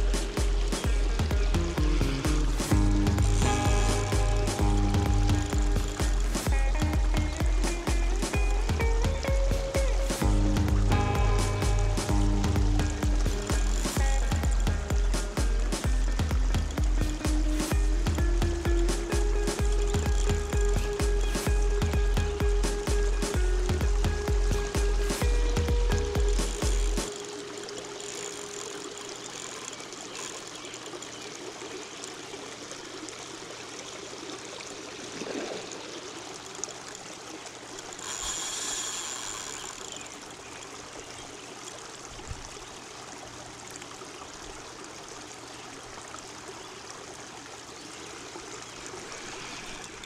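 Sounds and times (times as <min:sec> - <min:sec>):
background music: 0:00.0 - 0:27.5
lake water trickling on shore: 0:00.0 - 0:50.0.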